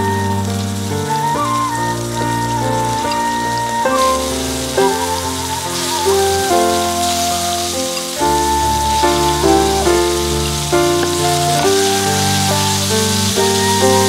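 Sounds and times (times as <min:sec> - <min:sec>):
background music: 0:00.0 - 0:14.0
mussels sizzling in oil: 0:00.0 - 0:14.0.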